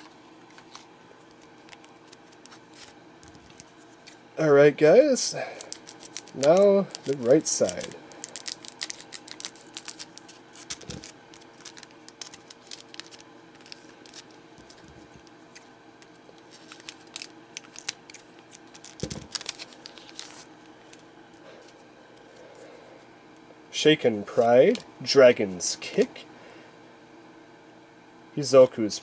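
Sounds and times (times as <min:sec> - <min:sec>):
foil wrapper crinkling: 0:05.5 - 0:21.0
scissors snipping foil: 0:05.6 - 0:14.8.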